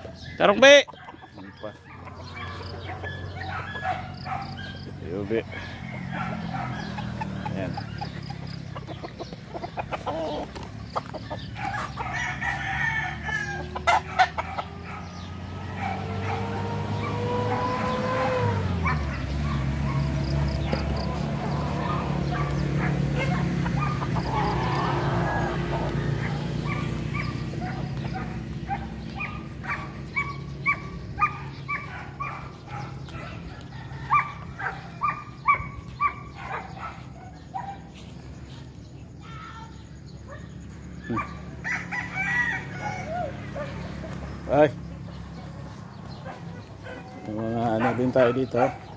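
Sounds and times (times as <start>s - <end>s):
chickens clucking: 0.0s - 39.2s, 40.2s - 48.9s
roosters crowing: 0.0s - 48.9s
animal high-pitched calls: 21.0s - 33.4s.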